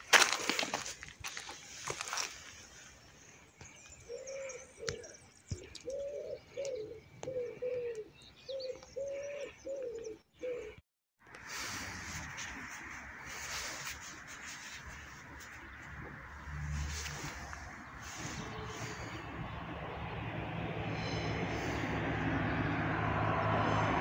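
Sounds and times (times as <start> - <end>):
pigeon cooing: 4.1 - 10.8.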